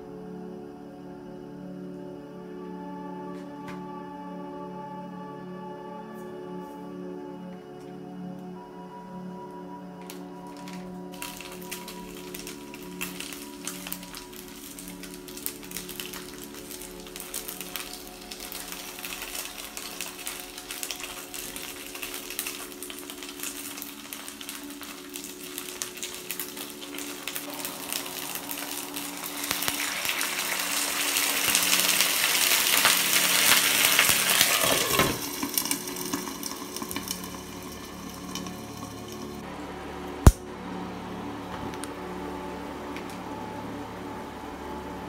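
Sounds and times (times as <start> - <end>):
dumplings sizzling in oil: 10.5 - 39.4
water hitting hot pan: 10.6 - 39.4.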